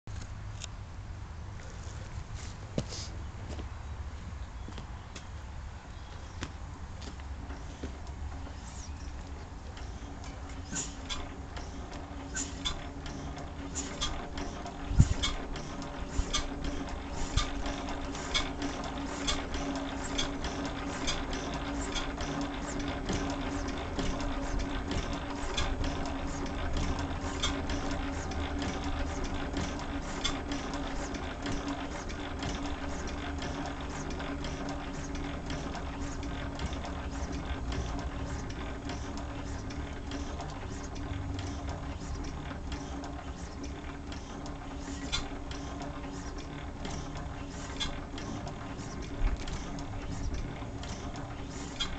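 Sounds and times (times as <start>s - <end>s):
steady hum: 0.1s - 51.9s
stationary engine clicking: 7.1s - 51.9s.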